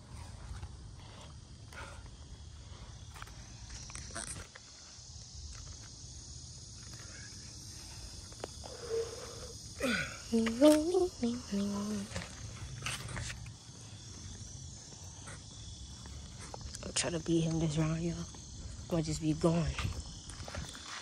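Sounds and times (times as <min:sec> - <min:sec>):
insects chorus: 0:00.0 - 0:21.0
wind rumble on microphone: 0:18.3 - 0:20.9.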